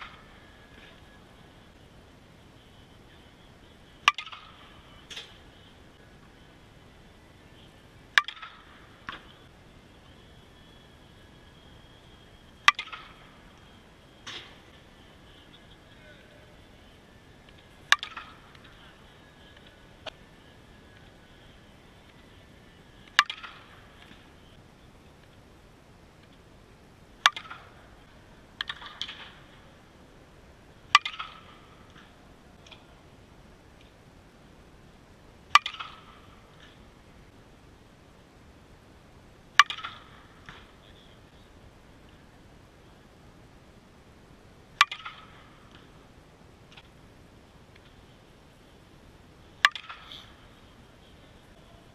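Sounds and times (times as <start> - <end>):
softball bat cracking: 4.0 - 5.4, 8.2 - 9.4, 12.7 - 13.3, 17.5 - 18.8, 23.0 - 24.3, 27.2 - 27.8, 28.6 - 29.4, 30.9 - 32.1, 35.5 - 36.8, 39.6 - 40.7, 44.8 - 45.9, 49.6 - 50.3.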